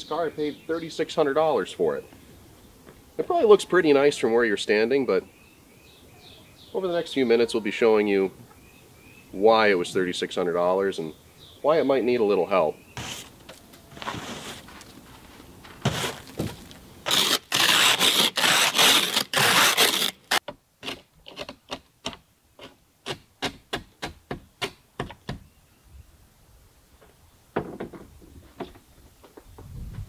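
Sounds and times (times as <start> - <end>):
snow brush sweeping car window: 13.0 - 13.3, 14.0 - 14.8, 15.8 - 20.2.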